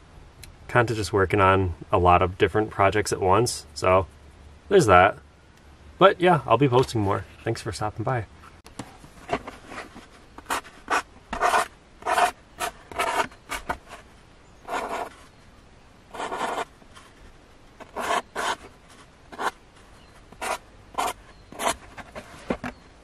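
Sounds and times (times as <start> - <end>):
marker writing on cardboard: 10.4 - 14.0, 14.7 - 15.2, 16.1 - 16.7, 17.8 - 19.6, 20.3 - 22.2.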